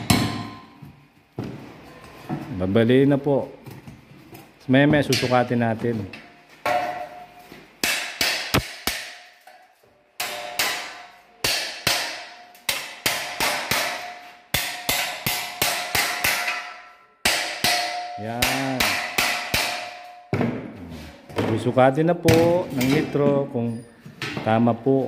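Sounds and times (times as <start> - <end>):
hammer striking steel cable tray: 6.7 - 9.6, 10.2 - 20.5.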